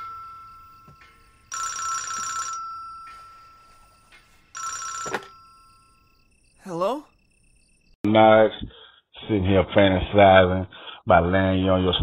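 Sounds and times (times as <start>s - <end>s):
telephone ringing: 0.0s - 6.3s.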